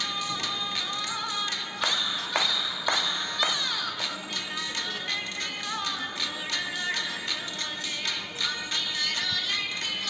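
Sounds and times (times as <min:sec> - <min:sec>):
steady percussion beat: 0:01.7 - 0:04.3.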